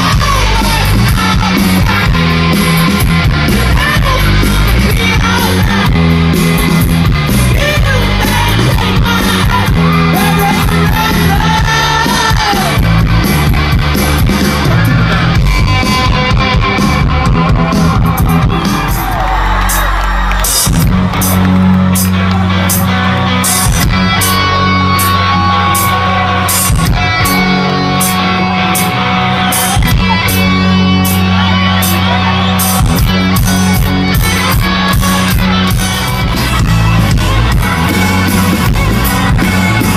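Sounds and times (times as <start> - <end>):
person singing: 0.0 - 6.2, 7.3 - 13.0
bass guitar: 0.0 - 39.9
drums: 0.0 - 39.9
electric guitars: 0.0 - 39.9.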